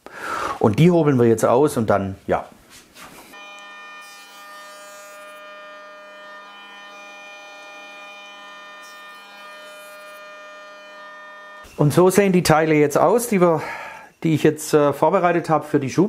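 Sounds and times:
hiss of planer cutting wood: 0:03.3 - 0:11.7
planer whining: 0:03.3 - 0:11.8.

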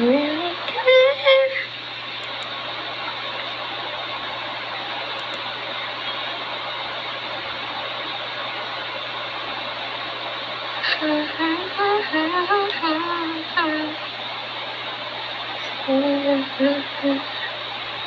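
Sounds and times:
woman singing: 0:00.0 - 0:01.7, 0:10.8 - 0:14.0, 0:15.8 - 0:17.6
low hum: 0:00.0 - 0:18.0.

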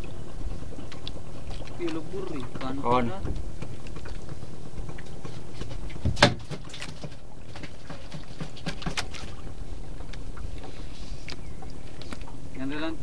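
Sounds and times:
boat on the water: 0:00.0 - 0:13.0
sharp knock on wooden boat: 0:06.0 - 0:07.1.

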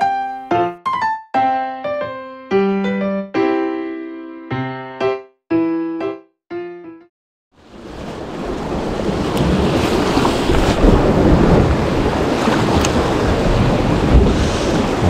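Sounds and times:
waves splashing against rocks: 0:07.8 - 0:15.0
wind buffeting microphone: 0:07.9 - 0:15.0.

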